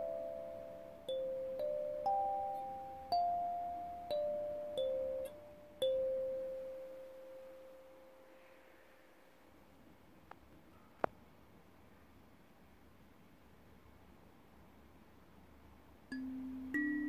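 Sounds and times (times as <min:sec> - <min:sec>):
kalimba plucked melody: 0:00.0 - 0:07.1, 0:16.1 - 0:17.0.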